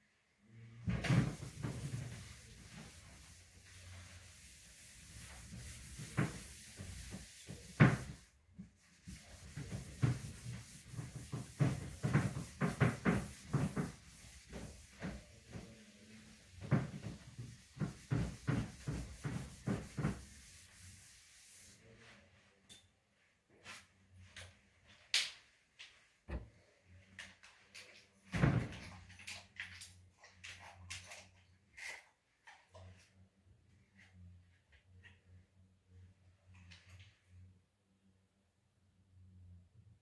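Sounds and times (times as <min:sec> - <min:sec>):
whiteboard being wiped: 0:00.9 - 0:22.6, 0:23.6 - 0:25.1.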